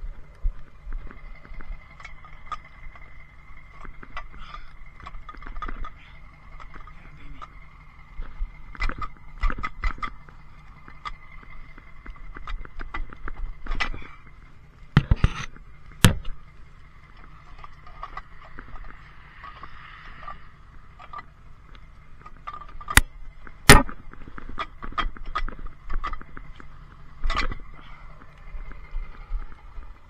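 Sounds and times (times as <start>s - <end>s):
high engine whine: 0.0s - 30.0s
truck engine running: 0.0s - 30.0s
metal gear clanking: 15.0s - 30.0s.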